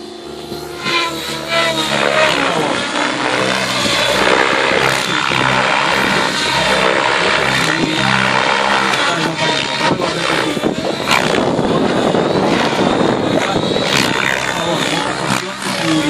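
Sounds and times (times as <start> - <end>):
model airplane engine and propeller: 0.0 - 16.0.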